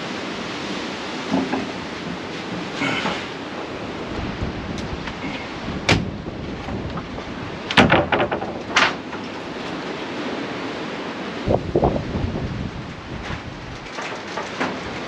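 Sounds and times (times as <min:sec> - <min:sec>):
wind noise on microphone: 0:00.0 - 0:15.0
wooden panel knocking on deck: 0:07.8 - 0:08.6.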